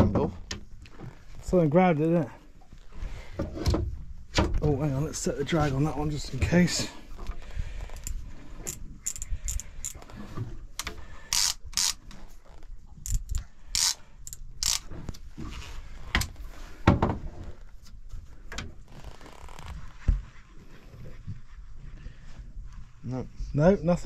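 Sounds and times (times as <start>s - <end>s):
fishing reel ratchet clicking: 8.0s - 10.0s, 11.3s - 12.1s, 13.0s - 14.9s.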